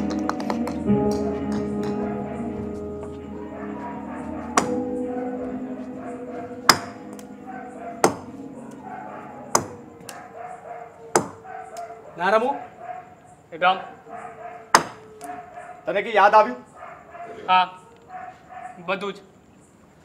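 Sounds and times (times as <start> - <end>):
soft music with held notes: 0.0 - 11.5
sharp ringing knocks: 4.5 - 5.0, 8.0 - 8.8, 9.4 - 10.3.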